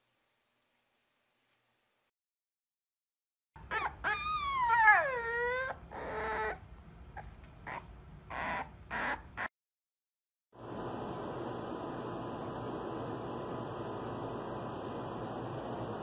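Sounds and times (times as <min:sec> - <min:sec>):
puppy whining: 0:03.6 - 0:09.5.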